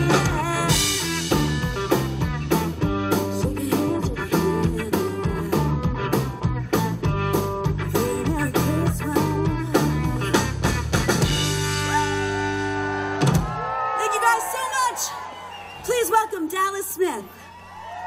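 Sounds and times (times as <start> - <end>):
woman singing: 0.0 - 1.0, 3.2 - 5.9, 7.8 - 10.3
live band playing: 0.0 - 17.4.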